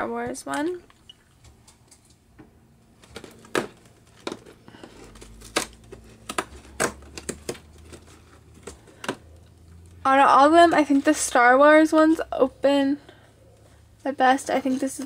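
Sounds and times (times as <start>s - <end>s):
card crinkling: 3.0s - 9.4s
cardboard tearing along perforations: 3.3s - 9.2s.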